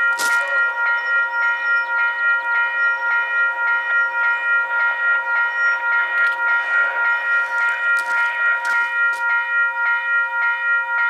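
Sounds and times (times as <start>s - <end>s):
train clicks: 0.0s - 1.1s, 5.5s - 10.0s
level crossing bell ringing: 0.0s - 11.0s.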